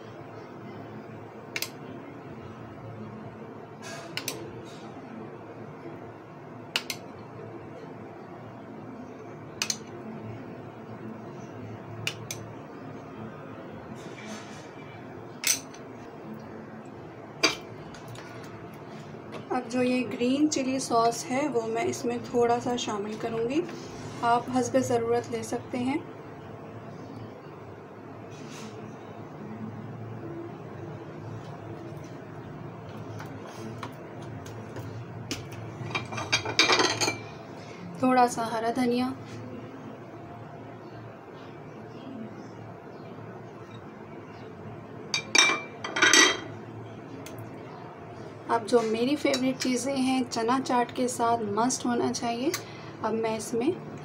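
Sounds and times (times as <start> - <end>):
faint background hum: 0.0 - 54.0
kitchenware clicks and knocks: 35.9 - 37.2.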